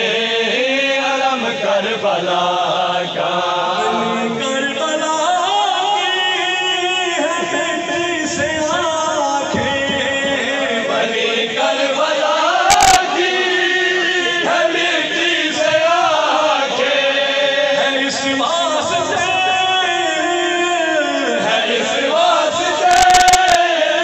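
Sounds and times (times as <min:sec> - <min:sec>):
group of men chanting: 0:00.0 - 0:24.0
man chanting into microphone: 0:00.0 - 0:24.0.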